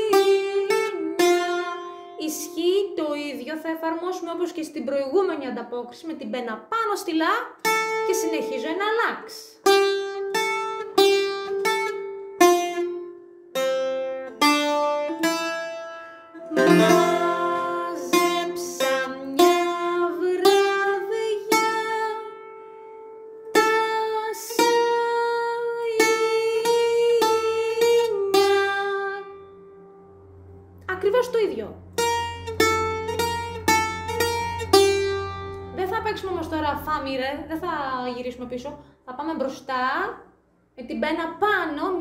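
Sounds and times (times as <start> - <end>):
bouzouki picked melody: 0.0 - 3.3, 7.5 - 37.0.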